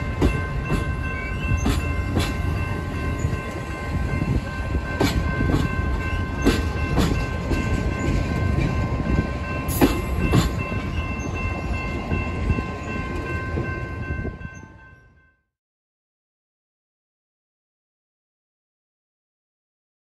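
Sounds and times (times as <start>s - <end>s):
railcars rumbling past: 0.0s - 15.3s.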